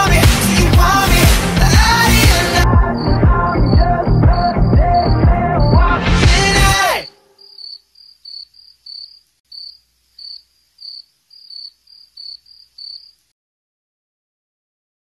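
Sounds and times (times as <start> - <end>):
song: 0.0 - 7.2
crickets chirping: 2.0 - 5.8, 6.7 - 13.3.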